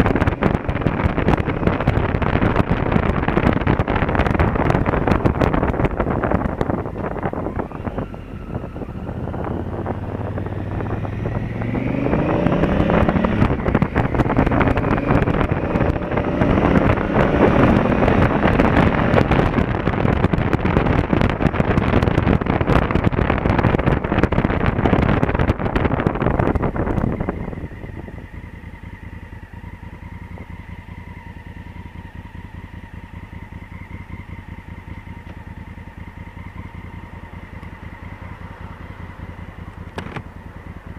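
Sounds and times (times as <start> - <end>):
motorcycle engine idling: 0.0 - 12.1, 12.7 - 40.9
wind noise on microphone: 0.0 - 28.9
motorcycle engine accelerating: 0.0 - 40.9.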